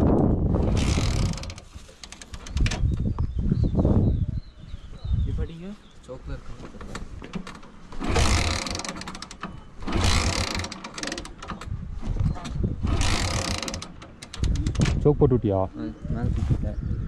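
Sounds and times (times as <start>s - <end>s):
motorcycle starter cranking: 0.6s - 2.9s, 7.4s - 15.1s.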